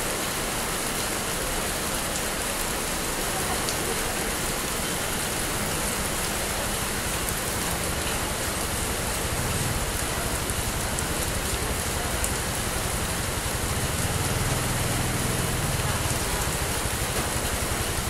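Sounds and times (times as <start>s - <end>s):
steady rain falling: 0.0s - 18.0s.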